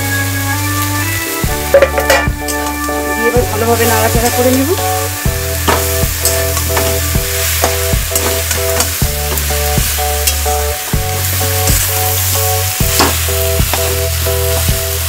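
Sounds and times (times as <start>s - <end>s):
background music with bass: 0.0s - 15.0s
fish sizzling in hot oil: 0.0s - 15.0s
spatula scraping metal pan: 1.5s - 9.6s.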